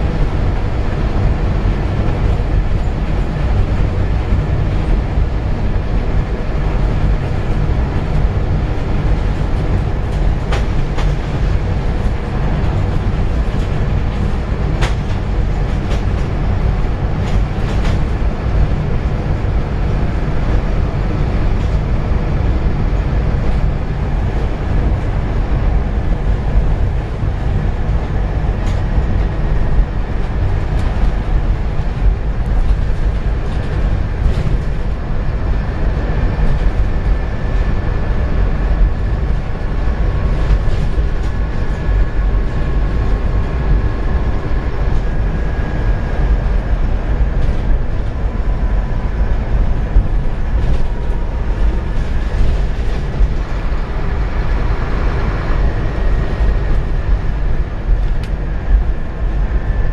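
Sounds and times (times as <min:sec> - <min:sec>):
bus engine and road rumble: 0:00.0 - 0:59.9
bodywork rattles and clicks: 0:06.8 - 0:18.4.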